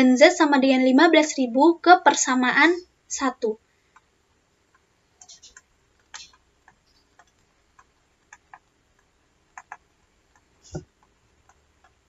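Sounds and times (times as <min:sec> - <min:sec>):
stylus tapping on tablet screen: 0:03.9 - 0:12.0.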